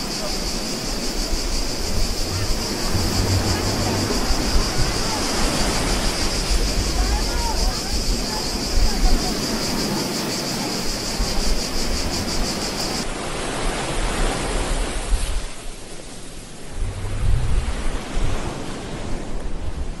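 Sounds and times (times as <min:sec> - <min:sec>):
high rapidly pulsing hiss: 0:00.0 - 0:13.0
ocean surf washing in: 0:00.0 - 0:19.6.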